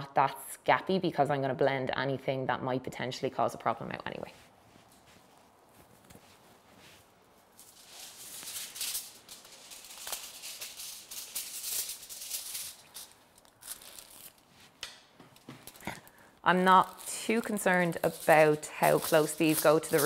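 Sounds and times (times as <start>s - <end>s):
aluminium foil crinkling: 7.4s - 14.8s, 15.4s - 20.0s.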